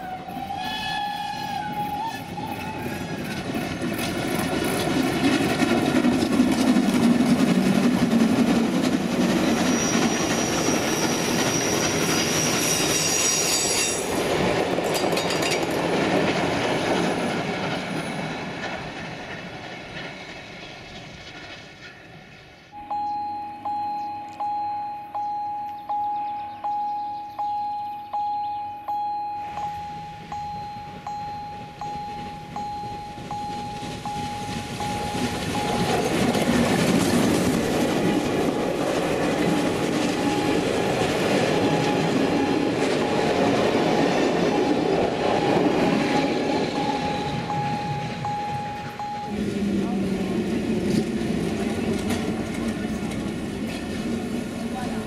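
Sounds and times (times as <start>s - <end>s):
train wheels rumbling: 0.0s - 23.0s, 29.5s - 55.0s
wheels clicking over rail joints: 1.2s - 22.5s, 31.8s - 48.3s, 50.6s - 55.0s
wheel squeal: 9.4s - 14.2s
bell striking: 22.8s - 36.6s.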